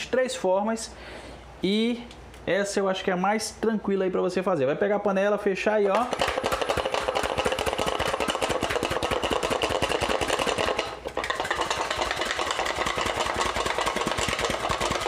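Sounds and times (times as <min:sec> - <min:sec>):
meat rattling in shaken pot: 0:05.9 - 0:15.0.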